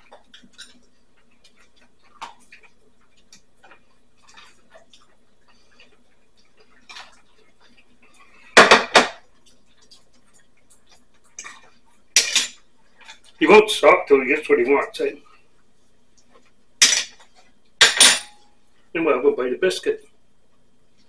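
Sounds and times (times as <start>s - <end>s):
plate and cutlery clattering: 12.2s - 12.6s, 16.8s - 17.2s, 17.8s - 18.5s.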